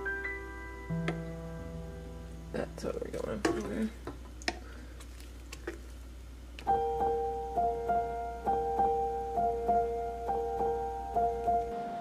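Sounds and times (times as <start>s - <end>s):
soft piano music: 0.0s - 3.2s, 6.6s - 12.0s.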